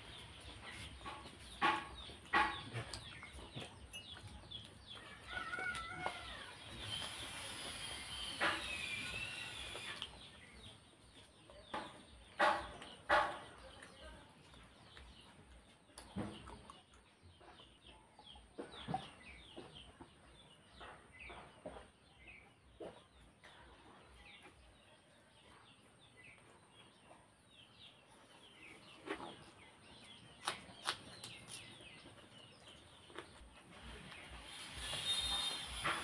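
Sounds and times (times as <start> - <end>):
chewing and eating by hand: 0.0 - 20.1, 28.1 - 36.0
faint birds chirping: 0.0 - 36.0.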